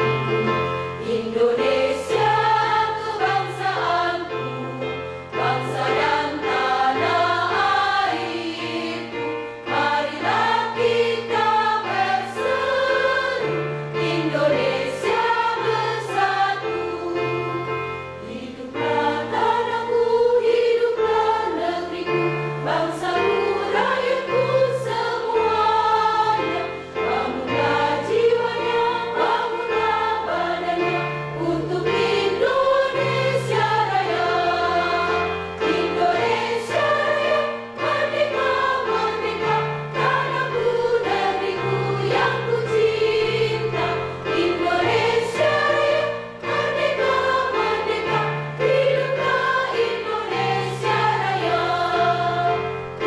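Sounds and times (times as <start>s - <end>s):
women's choir singing: 0.0s - 53.0s.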